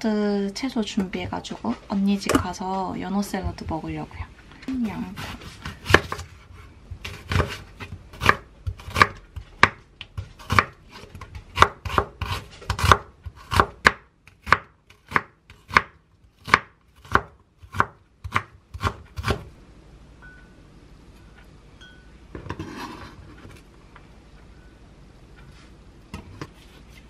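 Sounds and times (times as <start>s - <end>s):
knife chopping on wooden board: 7.0s - 19.5s.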